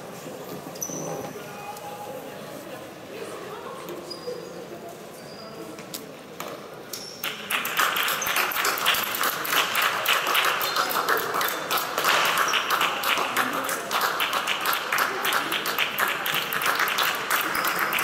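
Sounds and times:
spectators applauding: 7.2s - 18.0s.

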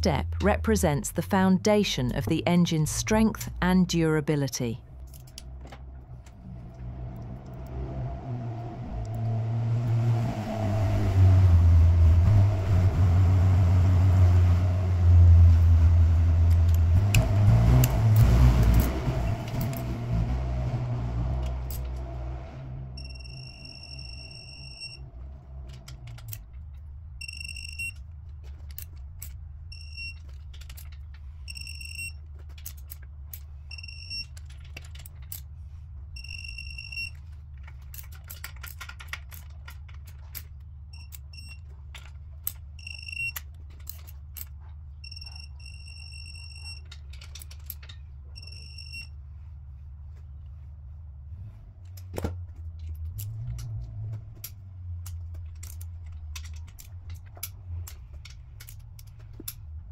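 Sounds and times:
low hum: 0.0s - 59.9s
high electronic beeps: 31.5s - 32.2s, 36.2s - 37.1s, 42.8s - 43.4s.

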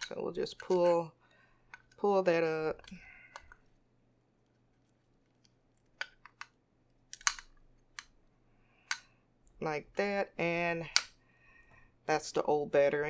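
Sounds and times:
battery pried off adhesive: 6.0s - 8.2s.

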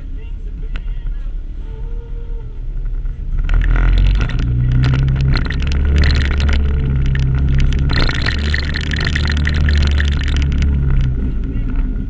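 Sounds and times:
atv engine running: 2.6s - 12.0s
knocks and rattles of vehicle: 2.6s - 12.0s.

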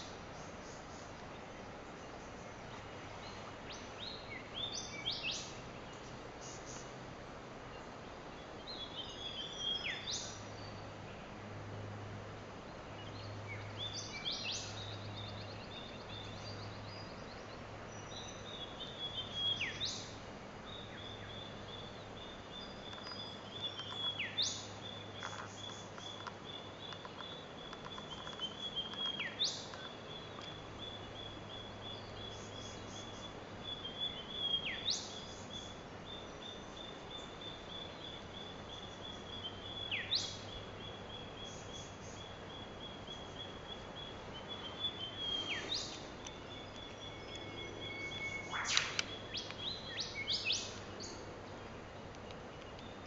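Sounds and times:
rapid high bird trill: 41.5s - 50.6s
sweeping bird whistle: 46.6s - 50.7s.

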